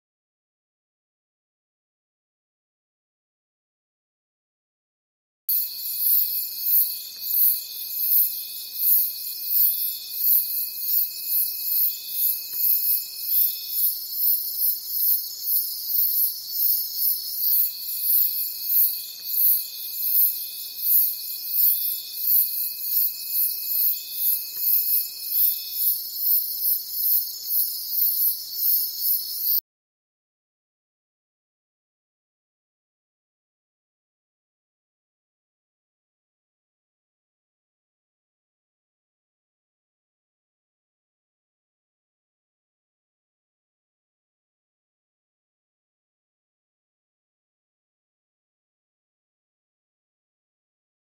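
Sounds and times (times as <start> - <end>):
insect buzz: 5.5 - 29.6
pulsing insect chirp: 5.5 - 29.6.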